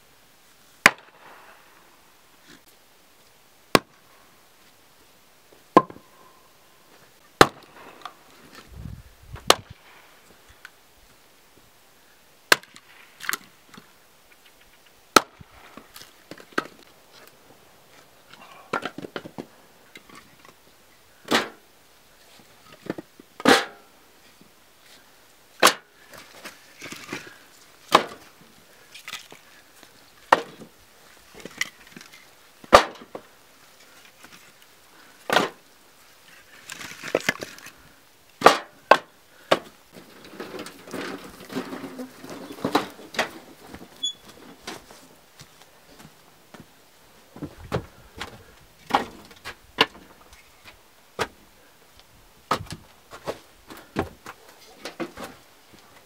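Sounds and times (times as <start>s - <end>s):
axe splitting logs: 0.8s - 1.2s, 3.7s - 4.0s, 5.8s - 6.0s, 7.4s - 8.6s, 9.4s - 9.8s, 12.5s - 13.5s, 15.1s - 16.9s, 18.7s - 20.6s, 21.2s - 21.6s, 22.8s - 23.9s, 25.6s - 28.4s, 30.3s - 30.7s, 31.4s - 33.3s, 35.3s - 35.6s, 38.4s - 43.4s.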